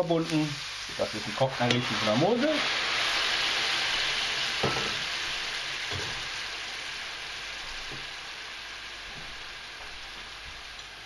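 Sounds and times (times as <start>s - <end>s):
mushrooms sizzling in a pan: 0.0s - 11.0s.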